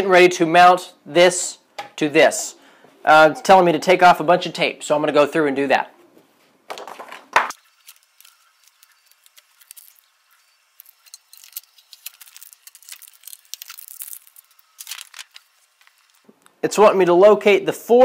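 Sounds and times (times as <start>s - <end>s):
packing tape peeling crackle: 7.5s - 16.5s.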